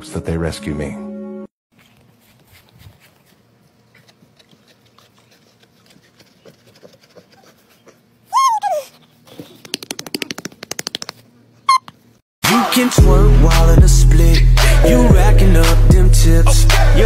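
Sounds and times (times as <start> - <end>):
rake scratching pig's back: 1.7 - 8.0.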